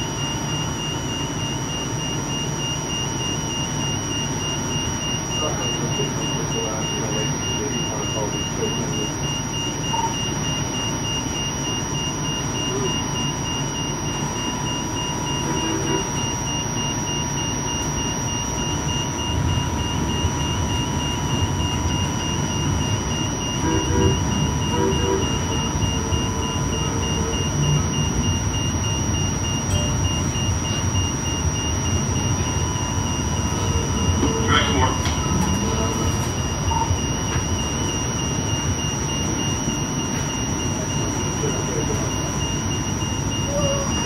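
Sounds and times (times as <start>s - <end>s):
rapidly pulsing high beep: 0.0s - 44.0s
steady high whine: 0.0s - 44.0s
rail car rumble: 19.3s - 28.6s.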